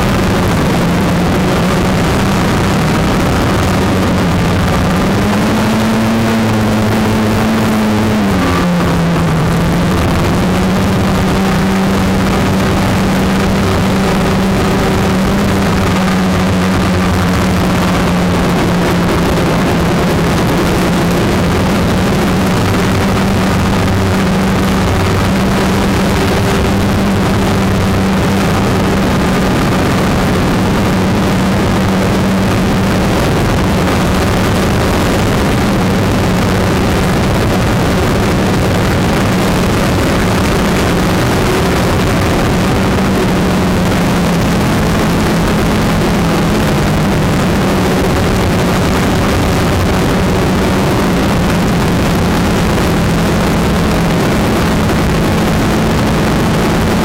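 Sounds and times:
drone motors humming: 0.0 - 35.6.

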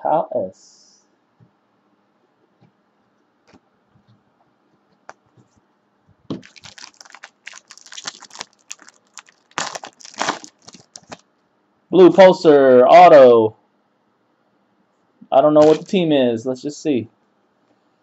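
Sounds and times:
foil wrapper crinkling and tearing: 6.4 - 11.2, 15.6 - 15.9.

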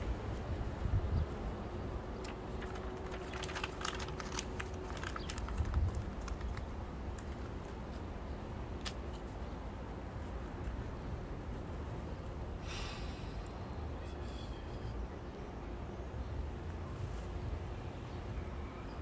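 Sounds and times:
wind rumble on microphone: 0.0 - 8.2.

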